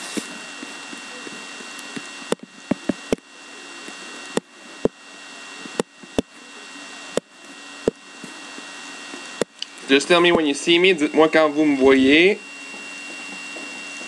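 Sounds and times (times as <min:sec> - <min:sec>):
steady hiss: 0:00.0 - 0:03.1
faint high whine: 0:00.0 - 0:14.0.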